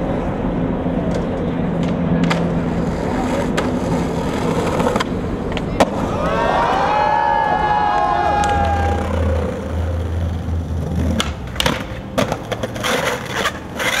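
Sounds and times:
skateboard clacking: 1.0 - 6.3, 7.8 - 14.0
skateboard wheels rolling on stone: 1.1 - 6.4, 7.0 - 14.0
onlookers shouting: 5.9 - 9.9.

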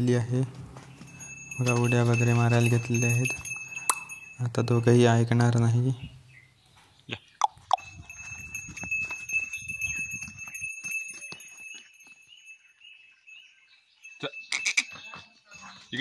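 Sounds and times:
hoof steps: 0.4 - 5.6, 6.6 - 12.8
small bell clinking: 0.9 - 5.7, 7.6 - 16.0.

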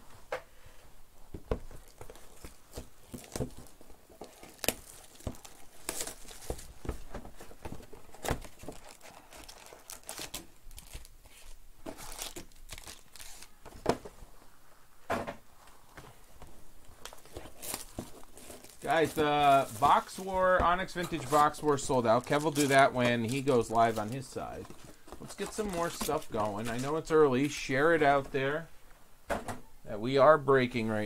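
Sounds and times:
foil wrappers crinkling and tearing: 1.8 - 6.8, 8.0 - 13.6, 17.0 - 27.1.

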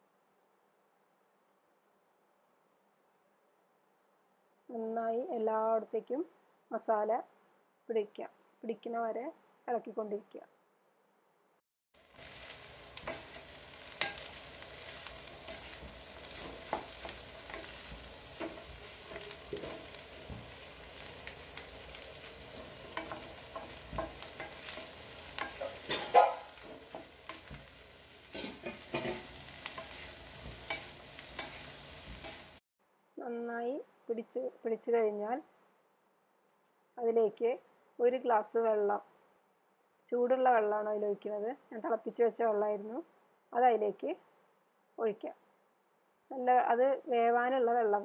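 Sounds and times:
food sizzling in a pan: 12.0 - 32.6
spoon scraping and knocking a pan: 12.2 - 32.6.

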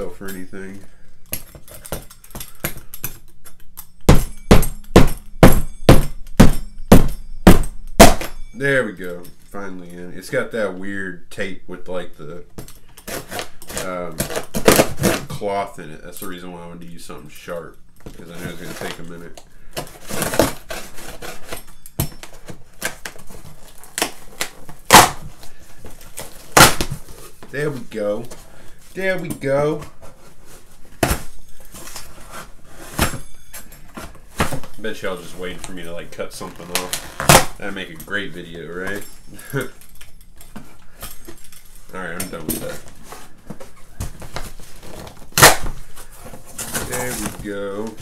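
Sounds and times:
pizza cutter scraping cardboard: 13.1 - 15.3.

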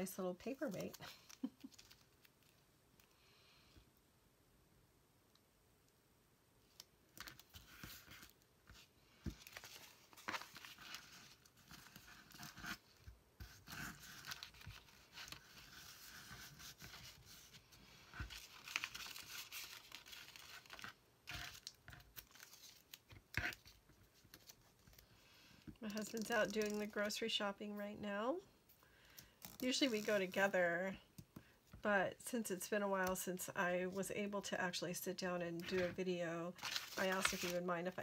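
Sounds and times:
paper map rustling and crinkling: 0.1 - 3.1, 6.7 - 27.3, 35.6 - 38.0.

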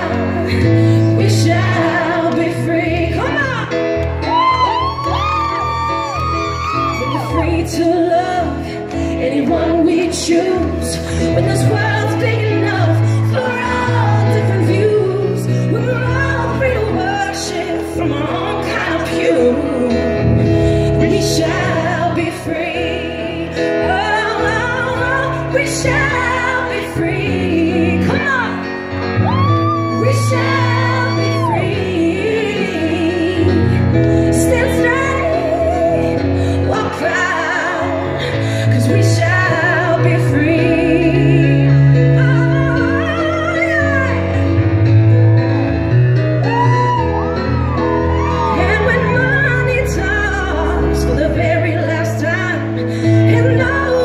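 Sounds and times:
woman singing a ballad: 0.0 - 44.7, 46.4 - 54.0
live band playing: 23.4 - 54.0.

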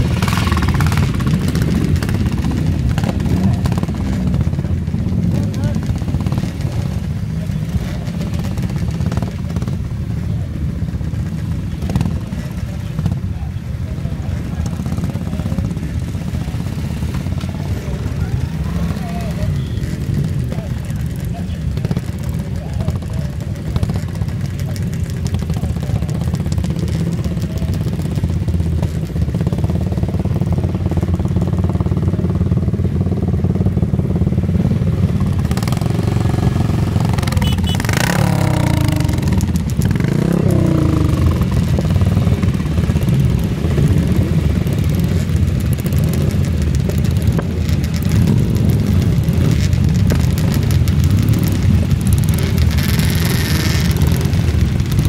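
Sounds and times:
motorcycle engines revving: 0.0 - 55.0
motorcycles idling: 0.0 - 55.0.

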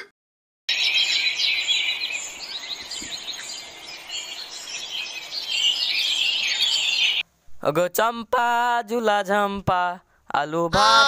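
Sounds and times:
small birds chirping and twittering: 0.7 - 7.2.

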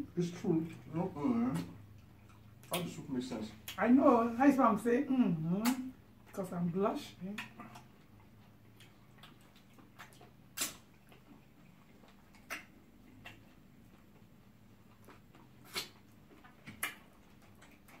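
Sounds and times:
lip smacks and chewing: 0.0 - 3.9, 5.5 - 6.5, 7.1 - 18.0
faint steady hum: 0.0 - 18.0.

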